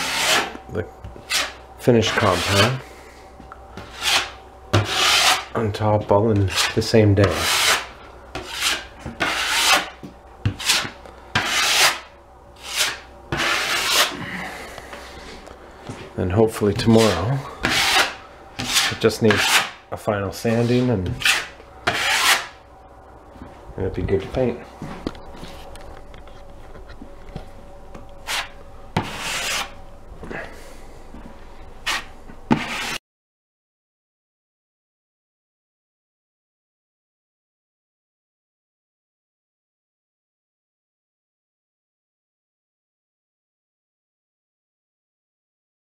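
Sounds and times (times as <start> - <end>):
taping knife scraping wall: 0.0 - 0.6, 1.2 - 2.8, 3.8 - 14.3, 16.7 - 19.8, 20.5 - 22.6, 28.2 - 29.8, 31.8 - 33.0.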